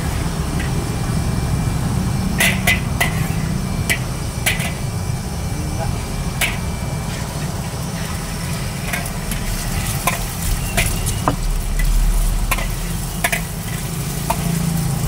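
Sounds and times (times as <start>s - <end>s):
ladle scraping wok: 0.0s - 1.0s, 2.4s - 5.1s, 5.8s - 15.0s
gas burner rumble: 0.0s - 15.0s
egg sizzling in hot oil: 6.1s - 15.0s.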